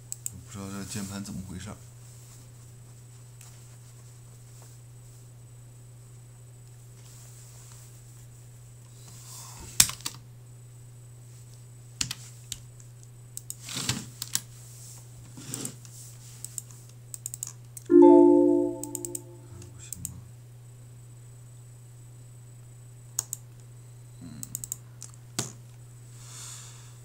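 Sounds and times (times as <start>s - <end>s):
computer error chime: 17.9s - 19.4s.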